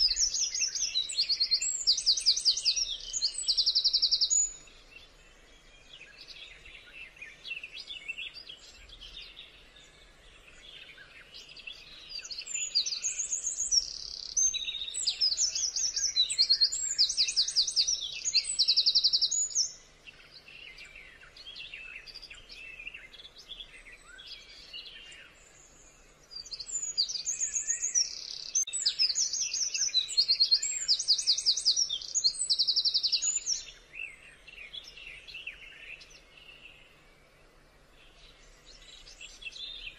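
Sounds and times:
birds chirping: 0.0 - 39.9.

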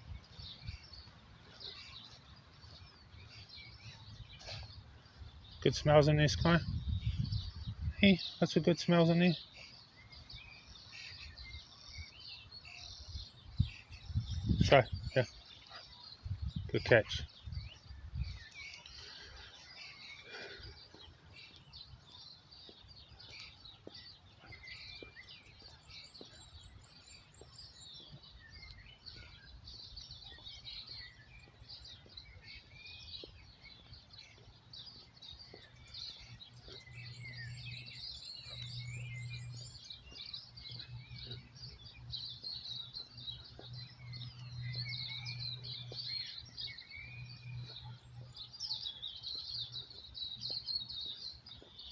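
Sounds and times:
songbirds chirping and singing: 0.0 - 51.9.

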